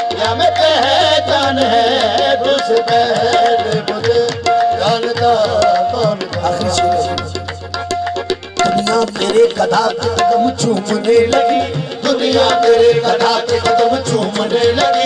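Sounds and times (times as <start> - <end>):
harmonium melody: 0.0 - 15.0
tabla strokes: 0.0 - 15.0
singers' voices: 5.2 - 7.6.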